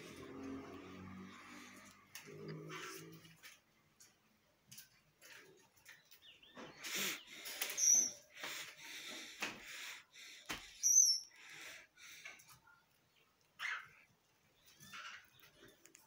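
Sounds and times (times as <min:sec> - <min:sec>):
finch chirps: 0:05.9 - 0:08.4, 0:10.7 - 0:11.6, 0:13.1 - 0:15.8.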